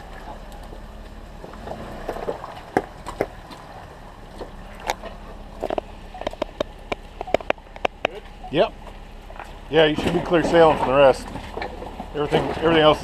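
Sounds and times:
car engine idling: 0.0s - 13.0s
sharp clicks and knocks: 4.3s - 13.0s.

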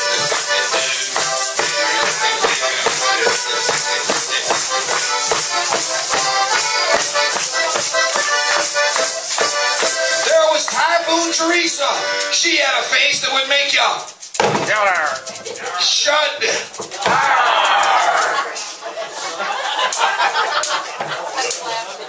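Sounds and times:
held melody notes: 0.0s - 13.0s
percussion beat: 0.0s - 18.7s.

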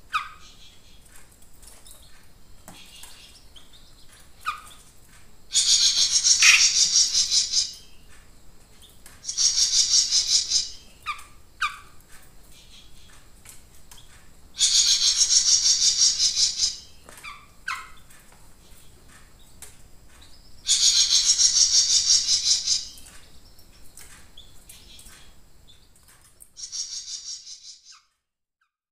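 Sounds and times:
songbird trilling: 5.5s - 8.0s, 9.2s - 11.8s, 14.6s - 18.1s, 20.6s - 23.1s, 26.6s - 28.0s
bird chirps: 5.5s - 8.1s, 8.8s - 11.8s, 14.0s - 18.1s, 20.2s - 23.7s, 24.4s - 26.0s, 26.6s - 28.1s.

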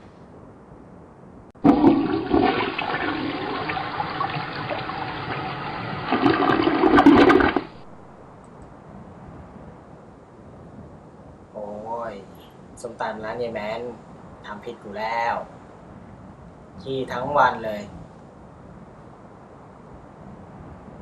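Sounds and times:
toilet flushing: 1.6s - 7.8s.

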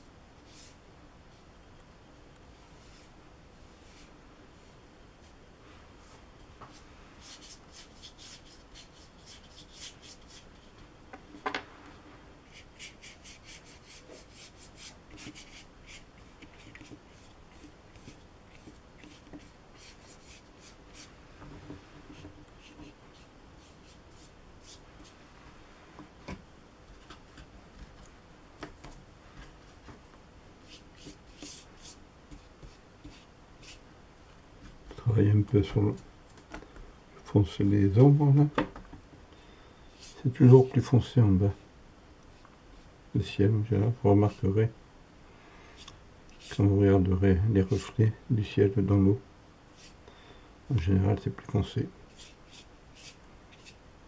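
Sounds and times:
brush scrubbing on paper: 6.7s - 10.7s, 12.4s - 21.2s, 21.8s - 25.2s, 30.6s - 33.8s, 49.8s - 50.0s, 52.1s - 53.8s.

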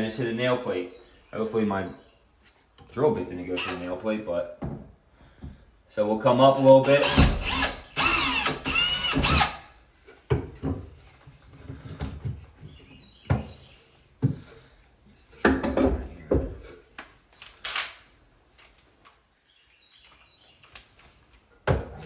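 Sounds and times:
knocks and clunks of drill handling: 6.8s - 14.6s, 15.4s - 18.0s
cordless drill running: 7.0s - 9.6s.

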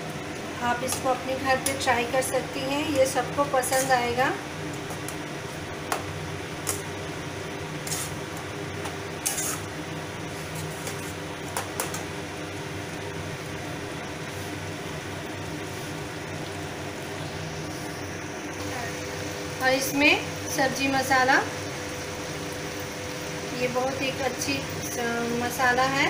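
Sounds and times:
steady background hum: 0.0s - 26.0s
metal spatula scraping pan: 3.6s - 4.0s, 9.2s - 9.7s.

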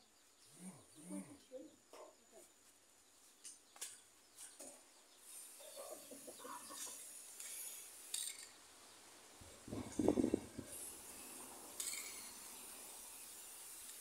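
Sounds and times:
hiss of rubbing against pole: 5.2s - 8.5s, 9.5s - 14.0s
chickens clucking: 5.6s - 7.2s.

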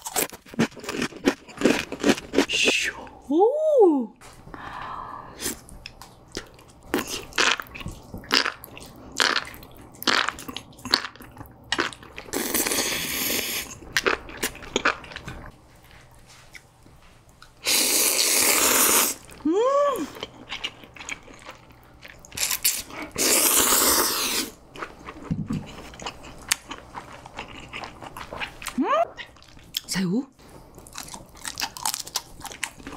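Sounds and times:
loud noodle slurps: 17.6s - 19.3s, 22.7s - 24.6s
wet chewing and smacking: 24.7s - 29.9s, 30.7s - 32.9s.

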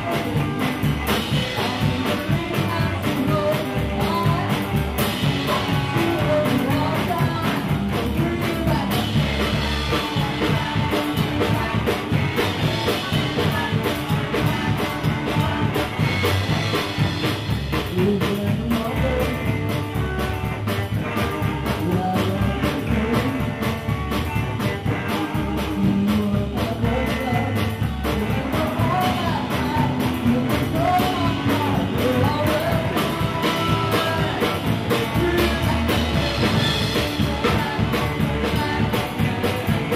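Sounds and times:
rock and roll band playing: 0.0s - 39.9s
woman singing into microphone: 1.3s - 16.0s, 17.9s - 19.5s, 25.0s - 39.9s.

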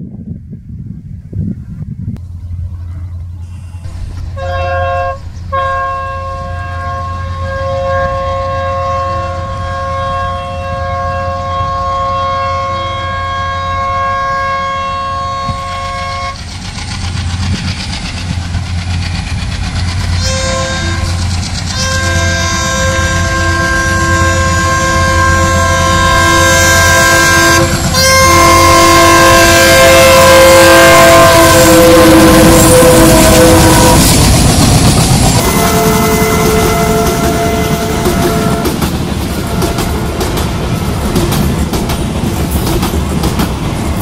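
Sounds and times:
moving train rumble: 0.0s - 44.0s
locomotive horn blasts: 3.4s - 16.4s, 20.2s - 34.2s, 35.4s - 38.8s, 39.4s - 40.2s.

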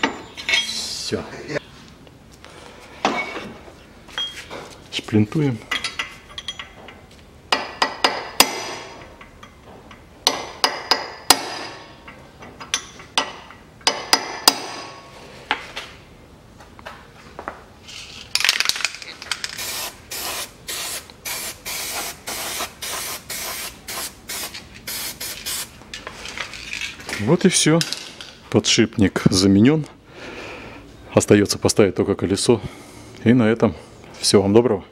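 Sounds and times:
aerosol spray can hissing: 19.6s - 25.7s.

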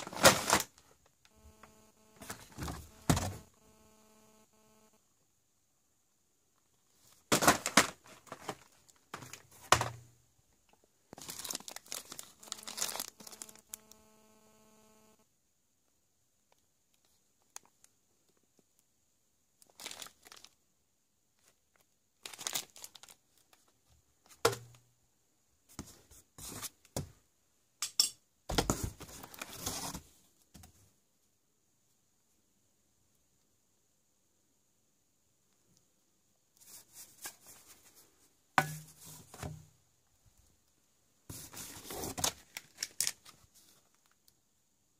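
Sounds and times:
plastic wrap crinkling: 11.2s - 13.9s, 19.6s - 20.6s, 21.4s - 23.7s, 41.4s - 44.2s.

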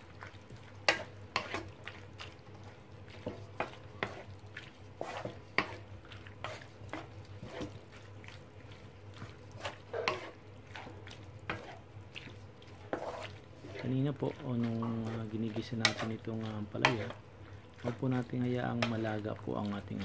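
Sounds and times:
faint sizzle: 0.0s - 20.0s
wooden spatula scraping a pan: 0.0s - 20.0s.

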